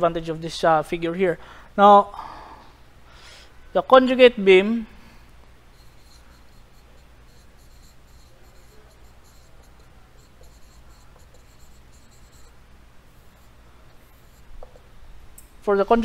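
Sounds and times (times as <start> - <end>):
faint low hum: 0.0 - 16.0
marker squeaking on whiteboard: 5.7 - 14.8.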